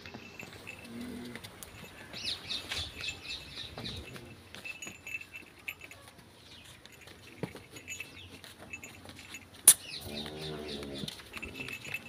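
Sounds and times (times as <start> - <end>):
small birds chirping: 1.7 - 5.5, 7.8 - 12.0.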